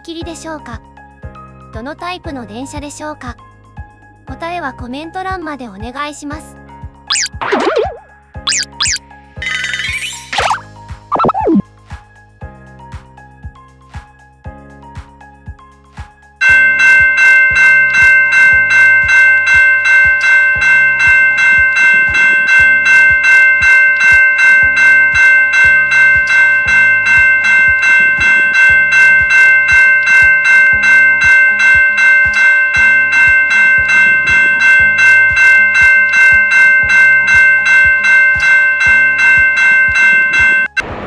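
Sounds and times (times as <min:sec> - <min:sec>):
level-crossing warning bell ringing: 0:16.4 - 0:40.8.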